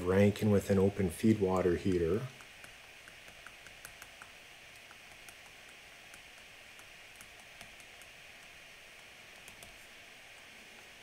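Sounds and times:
steady hiss: 0.0s - 11.0s
stylus tapping on tablet screen: 2.3s - 8.6s.

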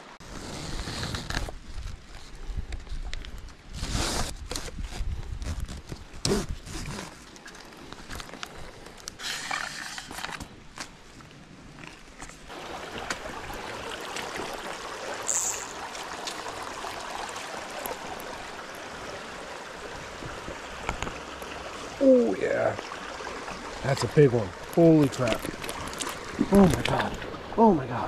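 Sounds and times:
footsteps on stream bank: 5.6s - 22.0s, 22.7s - 27.5s
stream running over rocks: 7.1s - 28.0s.

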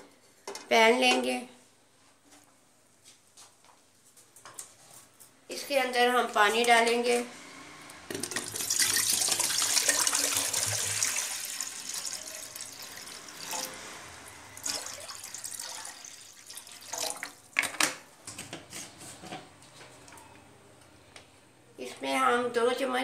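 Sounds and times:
water pouring into a pot: 8.1s - 17.5s.

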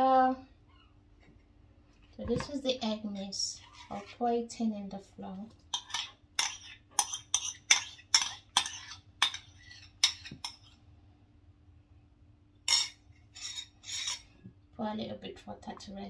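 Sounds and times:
metal spoon scraping ceramic bowl: 3.1s - 4.2s, 5.7s - 10.8s, 12.7s - 14.4s.

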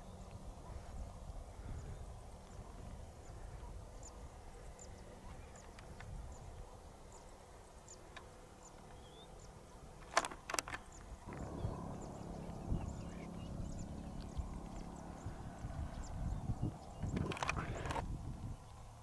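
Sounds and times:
low rumble: 11.3s - 17.1s.

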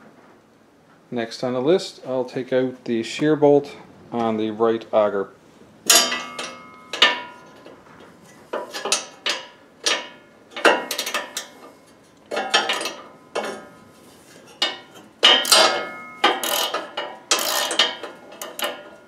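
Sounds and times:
wrench clanking on metal: 5.9s - 7.8s, 8.5s - 13.8s, 14.4s - 19.0s.

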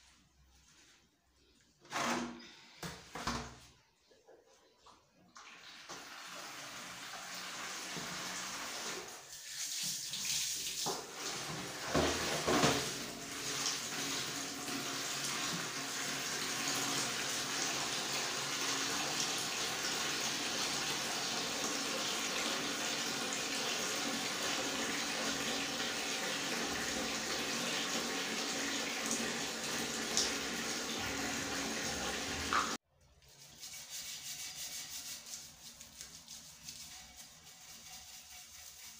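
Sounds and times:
tap water running into basin: 5.2s - 32.8s.

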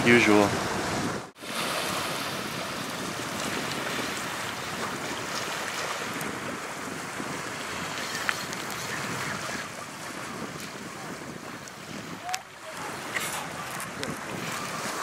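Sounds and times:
small waves lapping on shore: 0.0s - 15.0s
wind buffeting microphone: 0.0s - 15.0s.

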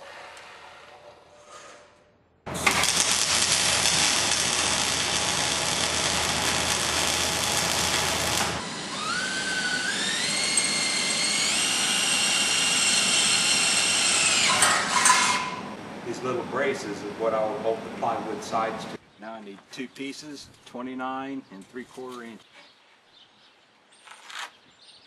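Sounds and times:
arc welding crackling hiss: 2.5s - 9.2s
cordless drill boring into steel: 2.6s - 14.6s.

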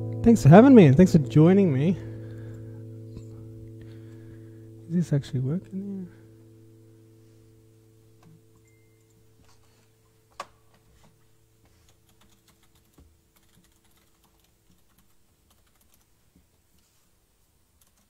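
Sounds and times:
faint keyboard typing: 11.0s - 16.6s, 17.7s - 18.0s.

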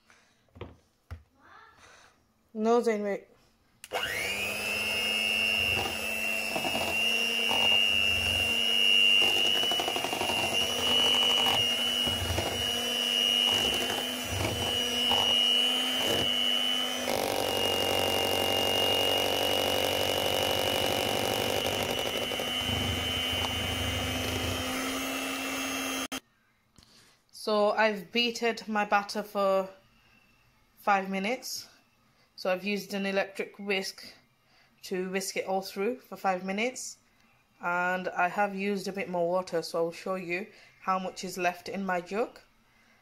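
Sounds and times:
electric hand mixer whisking batter: 3.9s - 26.2s.

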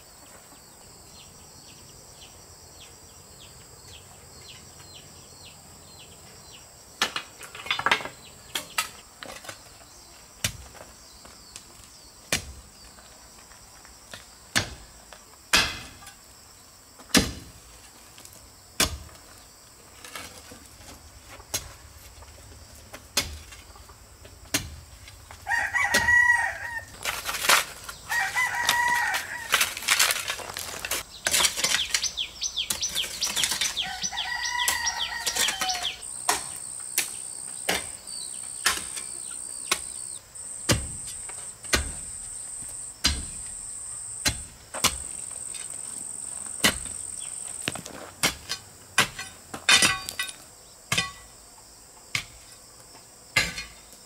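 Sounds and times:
insect buzz: 0.0s - 54.0s
rooster crowing: 25.4s - 27.0s, 28.1s - 29.9s, 33.8s - 36.1s.

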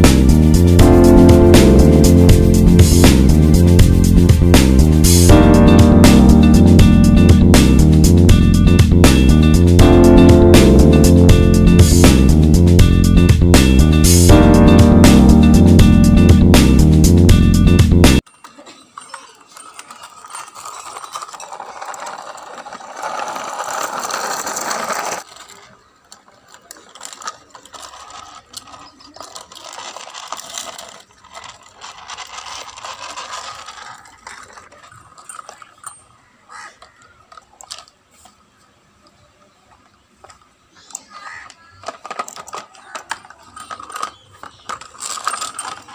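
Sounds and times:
toy wheels and gears ratcheting: 0.0s - 16.9s, 17.7s - 38.3s, 39.8s - 45.9s
plastic toys clicking and knocking: 18.2s - 38.4s, 39.0s - 45.9s.

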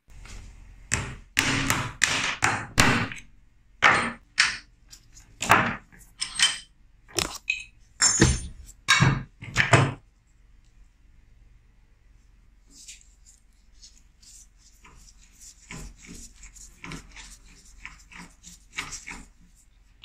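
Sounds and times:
sharp metal knocks and clunks: 0.9s - 4.7s, 8.0s - 10.0s.

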